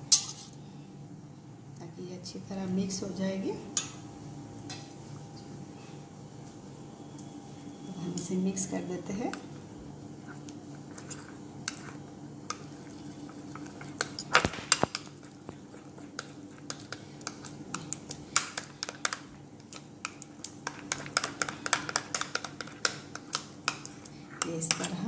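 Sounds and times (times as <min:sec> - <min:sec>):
spoon stirring batter: 0:09.1 - 0:25.0.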